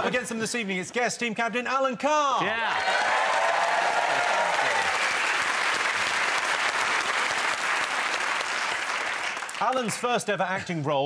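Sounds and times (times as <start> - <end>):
studio audience applauding: 2.6 - 10.3.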